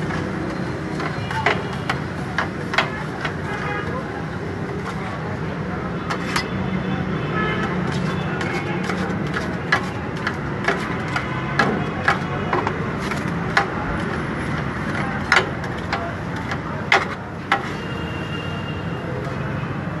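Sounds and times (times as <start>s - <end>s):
metal spatulas clinking on griddle: 7.6s - 14.1s.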